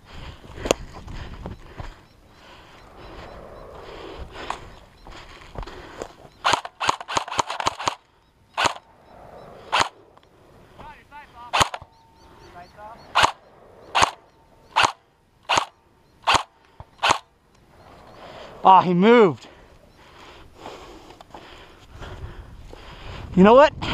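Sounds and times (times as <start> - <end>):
airsoft rifle shots: 6.4 - 8.0, 8.6 - 8.9, 9.7 - 10.0, 11.4 - 11.9, 13.1 - 17.3.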